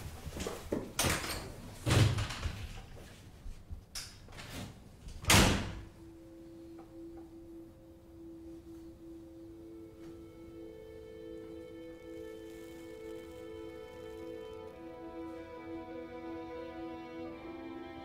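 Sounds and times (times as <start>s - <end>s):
low held background music tone: 0.0s - 18.0s
door slamming: 5.2s - 5.9s.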